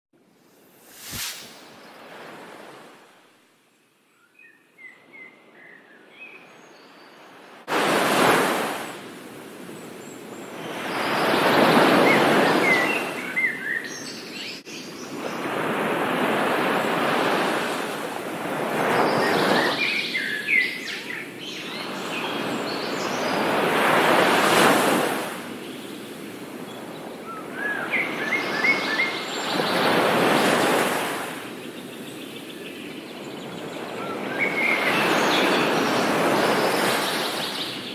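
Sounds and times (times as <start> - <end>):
surf washing onto shore: 7.6 - 9.7.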